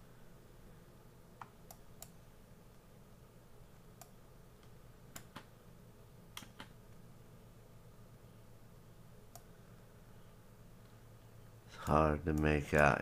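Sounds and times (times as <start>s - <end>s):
low steady hum: 0.0s - 13.0s
computer control clicks: 5.1s - 5.5s, 6.3s - 6.8s.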